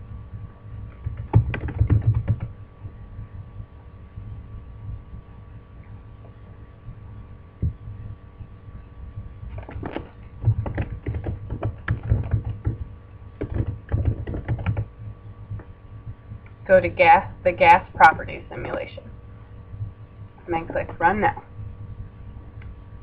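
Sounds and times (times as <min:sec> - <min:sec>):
low steady hum: 0:00.0 - 0:23.0
computer keyboard typing: 0:00.9 - 0:02.5, 0:09.6 - 0:14.9.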